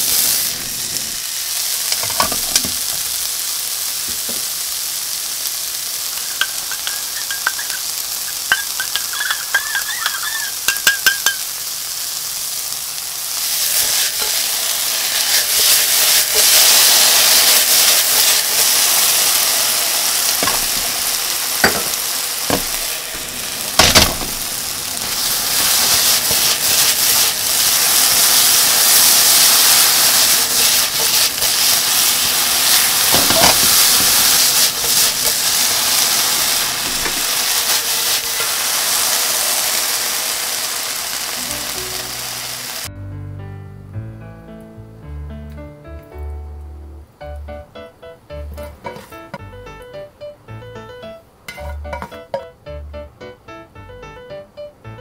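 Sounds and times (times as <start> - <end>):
loud sizzling in frying pan: 0.0 - 42.9, 51.5 - 52.4
spoon clinking in metal cup: 6.3 - 7.9, 8.5 - 11.4
spatula knocking against pan: 8.5 - 11.4.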